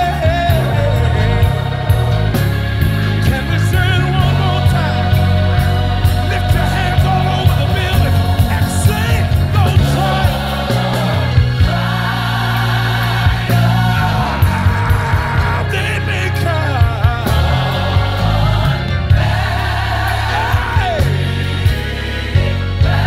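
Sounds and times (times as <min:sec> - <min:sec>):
bass line: 0:00.0 - 0:23.0
people singing: 0:00.0 - 0:23.0
drum hits: 0:16.8 - 0:23.0.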